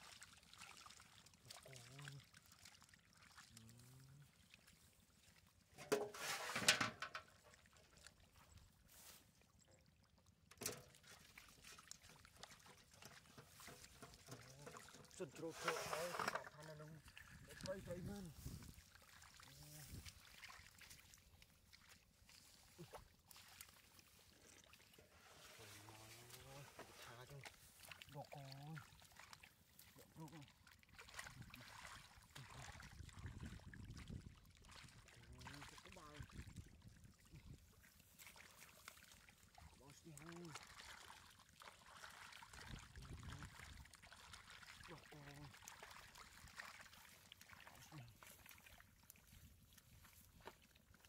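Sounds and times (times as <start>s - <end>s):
hands splashing in muddy water: 10.6s - 32.9s, 38.0s - 50.9s
fish splashing in water: 40.5s - 49.0s.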